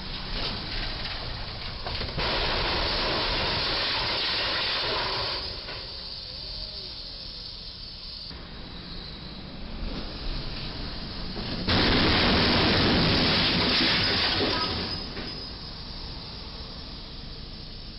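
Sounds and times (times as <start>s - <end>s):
traffic: 0.0s - 2.7s, 3.4s - 17.9s
truck crashing and scraping: 0.0s - 6.0s, 10.3s - 15.6s.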